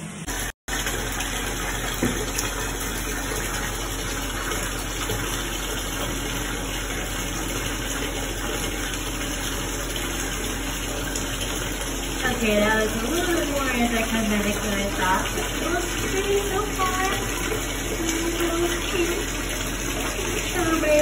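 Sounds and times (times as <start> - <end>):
jet pump humming: 0.0 - 21.0
water churning: 0.2 - 21.0
bath bomb plopping into water: 1.9 - 2.5.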